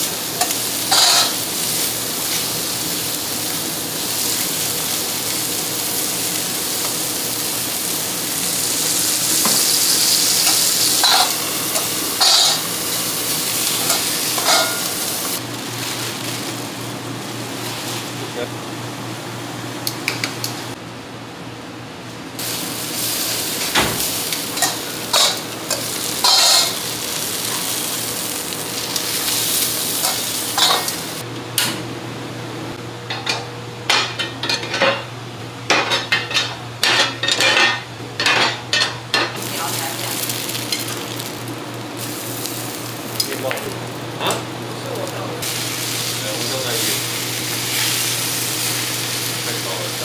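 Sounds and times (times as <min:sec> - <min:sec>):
food sizzling on hot plates: 0:00.0 - 0:18.4, 0:22.4 - 0:31.2, 0:38.8 - 0:50.0
metal tongs and plates clattering: 0:00.4 - 0:01.4, 0:10.4 - 0:12.6, 0:13.8 - 0:14.9, 0:24.6 - 0:26.8.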